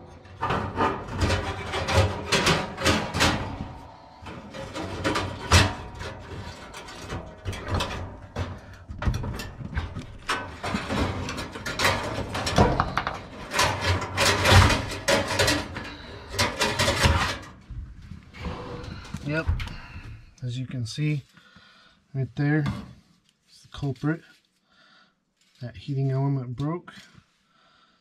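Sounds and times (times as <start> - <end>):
metal coils rattling and scraping: 0.0 - 19.8.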